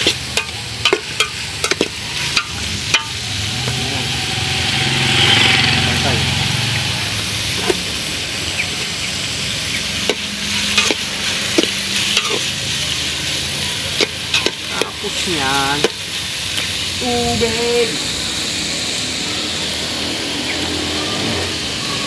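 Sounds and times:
onions sizzling in a pot: 0.0 - 22.0
metal ladle clinking against pot: 0.1 - 3.2, 10.1 - 11.0, 11.6 - 12.4.

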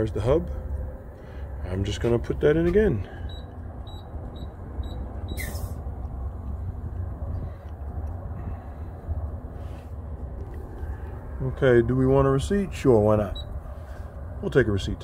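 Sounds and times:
low mechanical rumble: 0.0 - 15.0
keypad beeps: 3.3 - 5.6
brief hiss: 5.4 - 5.8.

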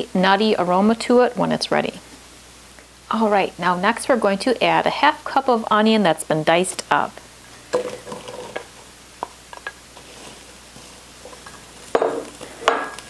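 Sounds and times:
faint sizzle: 0.0 - 13.0
spatula scraping a bowl: 10.0 - 11.7.

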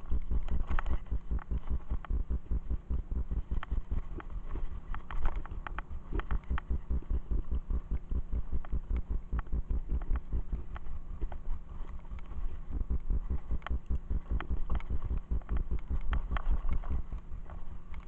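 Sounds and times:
wind rumble on microphone: 0.0 - 18.0.

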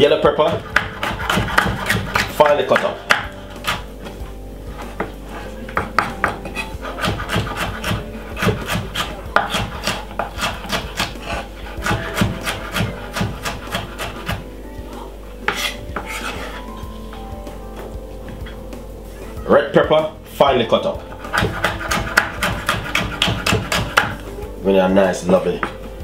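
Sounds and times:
knife chopping on wooden board: 0.3 - 4.2, 5.7 - 14.4, 21.2 - 24.2.

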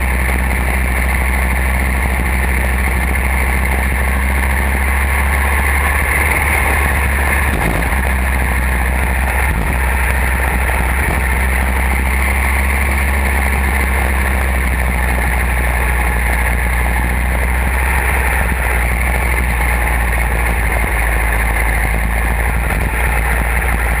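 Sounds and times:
go-kart engine running: 0.0 - 24.0.

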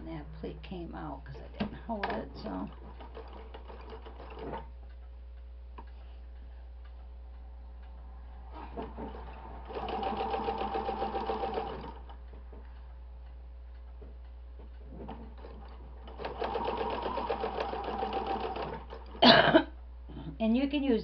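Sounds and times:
sewing machine stitching: 2.0 - 4.7, 8.5 - 12.1, 15.0 - 19.2.

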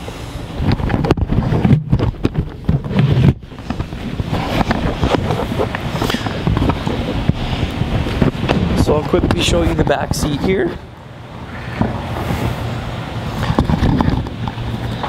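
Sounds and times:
microphone handling rumble: 0.5 - 10.9, 11.7 - 15.0
knocks and bumps: 0.7 - 10.4.

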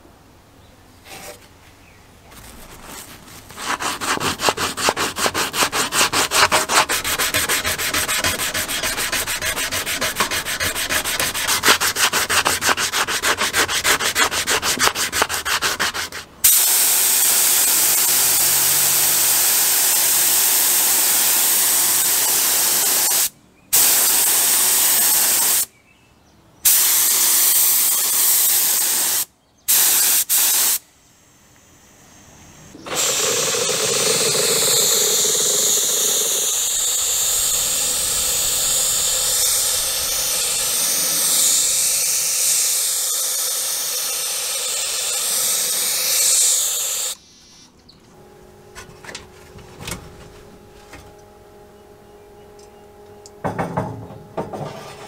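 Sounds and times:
sandpaper rubbing: 2.4 - 16.3
paint spraying hiss: 16.4 - 25.7, 26.7 - 30.8, 32.8 - 47.2.

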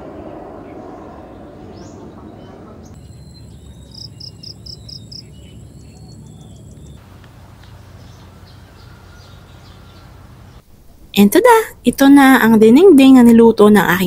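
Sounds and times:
insect chirps: 3.0 - 10.8
insects buzzing: 3.0 - 10.8.

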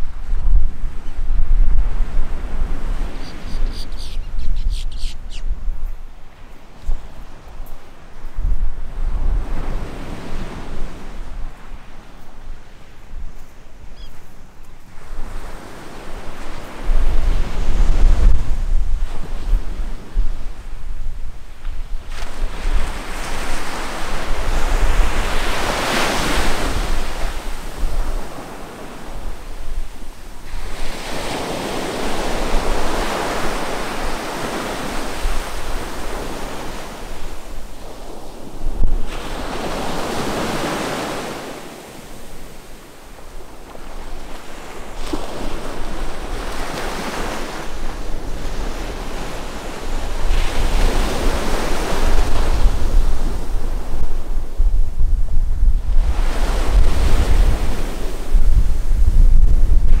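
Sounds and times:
wind rumble on microphone: 0.0 - 60.0
small waves breaking on beach: 21.5 - 54.6.

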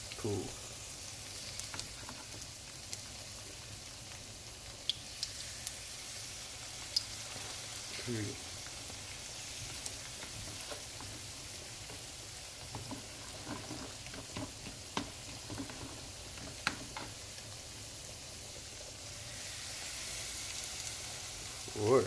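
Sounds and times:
batter frying in hot oil: 0.0 - 22.0
oil popping: 8.6 - 17.5.

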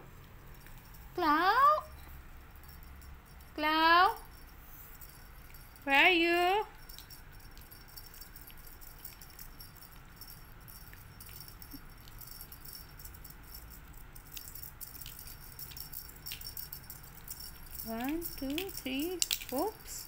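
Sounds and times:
faint light jingling: 0.0 - 20.0
small ticks: 6.8 - 20.0.

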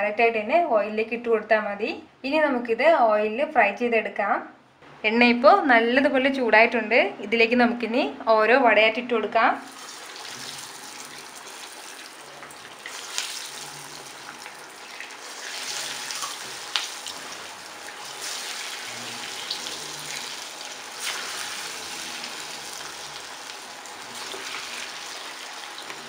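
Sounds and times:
fritters sizzling in hot oil: 9.7 - 26.0.

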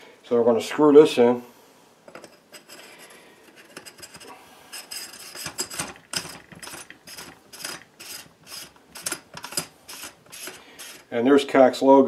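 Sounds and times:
metal threads scraping: 2.1 - 11.2.

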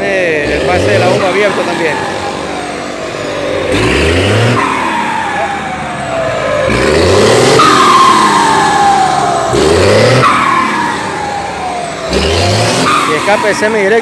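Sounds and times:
diesel engine revving: 0.0 - 14.0
turbocharger falling whistle: 6.7 - 11.6, 12.6 - 14.0.

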